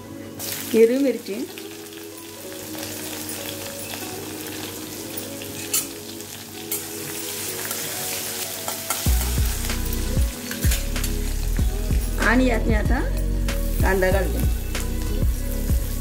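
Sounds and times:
chillies sizzling in hot oil: 0:00.0 - 0:16.0.

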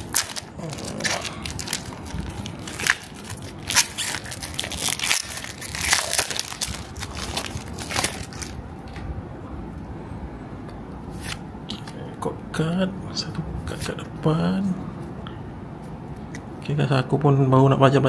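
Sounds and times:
foil wrapper tearing and crinkling: 0:00.0 - 0:08.6.

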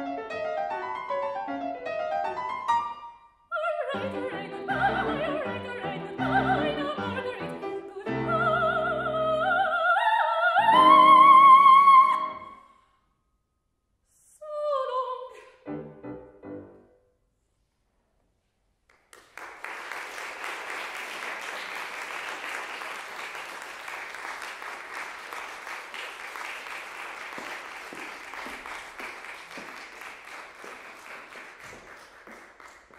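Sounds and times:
soprano singing: 0:03.5 - 0:12.6, 0:14.2 - 0:15.8
piano chords: 0:15.7 - 0:16.9
audience applauding: 0:18.9 - 0:32.9.

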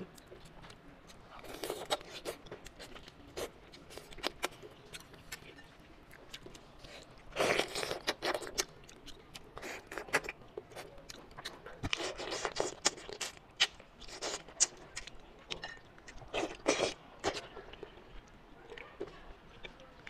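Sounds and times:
wet chewing and biting: 0:00.1 - 0:18.9.

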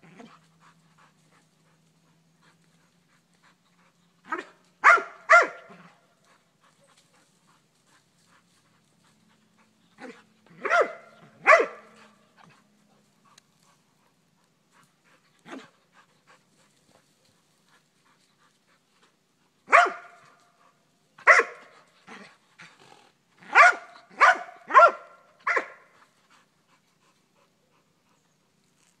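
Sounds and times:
dog barking: 0:04.3 - 0:05.8, 0:10.0 - 0:12.2, 0:19.7 - 0:20.3, 0:21.2 - 0:21.7, 0:23.5 - 0:25.9.

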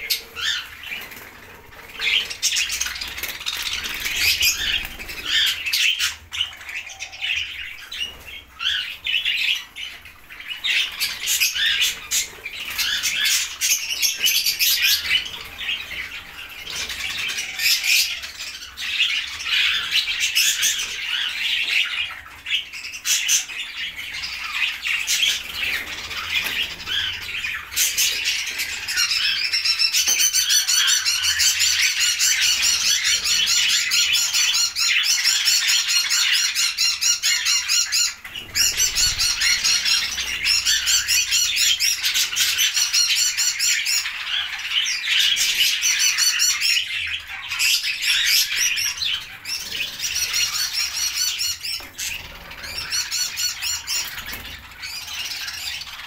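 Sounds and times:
budgerigars chattering and squawking: 0:00.0 - 0:56.0
wings fluttering: 0:00.4 - 0:05.6.

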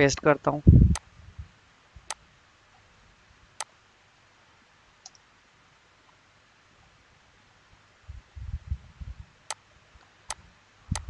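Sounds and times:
computer mouse clicks: 0:05.0 - 0:05.3, 0:10.3 - 0:11.0.

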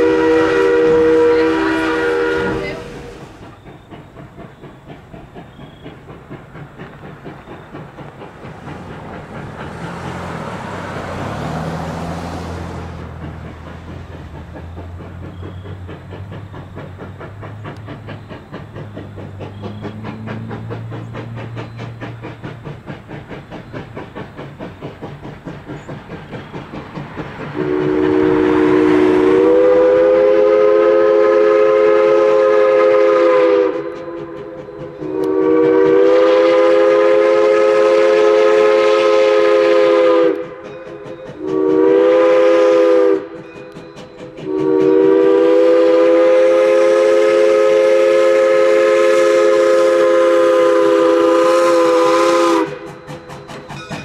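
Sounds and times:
steam whistle blasts: 0:00.0 - 0:03.5, 0:27.6 - 0:40.7, 0:41.3 - 0:43.8, 0:44.4 - 0:53.2
locomotive exhaust chuffing: 0:00.0 - 0:54.0.

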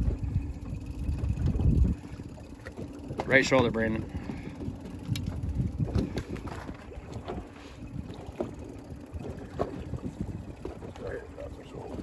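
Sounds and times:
boat engine rumble: 0:00.0 - 0:12.0
wind buffeting microphone: 0:00.0 - 0:12.0.

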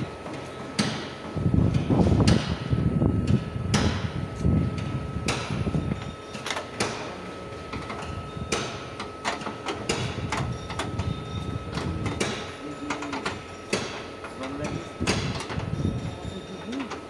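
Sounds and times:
sharp knocks and clicks: 0:07.8 - 0:15.7.

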